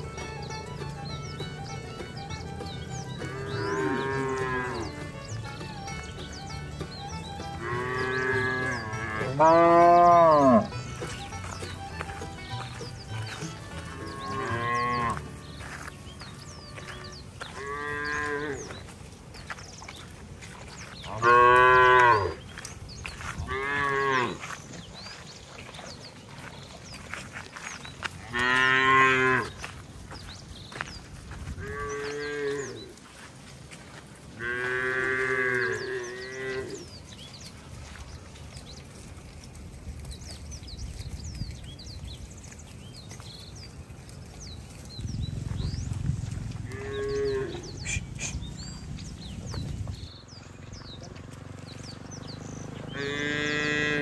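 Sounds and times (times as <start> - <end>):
cattle mooing: 3.0 - 5.2, 7.5 - 11.4, 13.2 - 15.3, 16.9 - 18.8, 21.1 - 22.4, 23.5 - 24.4, 28.2 - 29.6, 31.6 - 33.0, 34.4 - 37.0, 45.8 - 48.7, 52.8 - 54.0
low rumble: 44.4 - 52.9.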